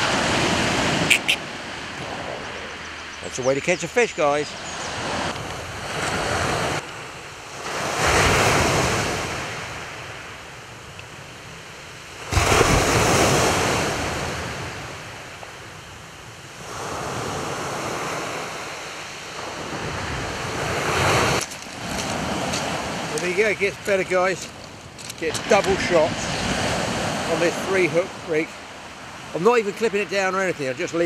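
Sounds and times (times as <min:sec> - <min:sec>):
waves breaking on shingle beach: 0:00.0 - 0:31.0.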